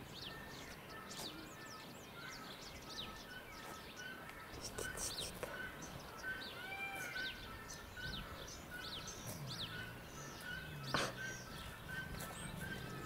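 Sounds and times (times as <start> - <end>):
outdoor background noise: 0.0 - 13.0
small birds chirping: 0.0 - 13.0.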